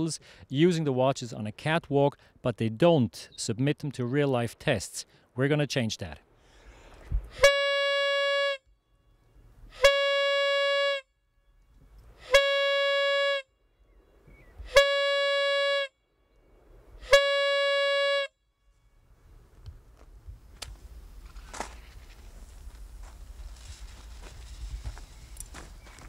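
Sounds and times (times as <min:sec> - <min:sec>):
signal horn blasts: 0:07.3 - 0:11.6, 0:12.2 - 0:13.7, 0:14.6 - 0:16.2, 0:17.0 - 0:19.0
faint rustling and scuffing: 0:19.8 - 0:26.0.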